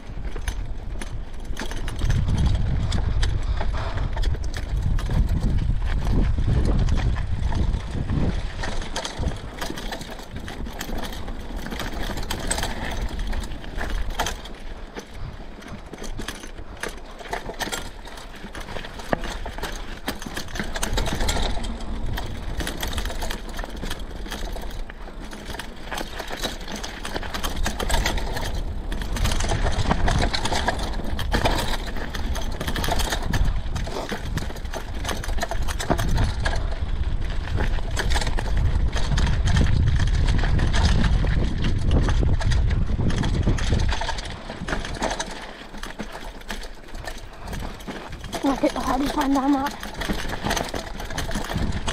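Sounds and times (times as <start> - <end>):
bike rattling: 0.0 - 51.9.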